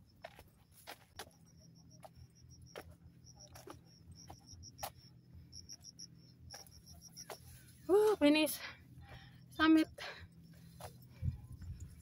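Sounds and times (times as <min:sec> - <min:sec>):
footsteps on dirt trail: 0:00.0 - 0:05.9, 0:06.5 - 0:12.0
insect chirping trill: 0:00.0 - 0:12.0.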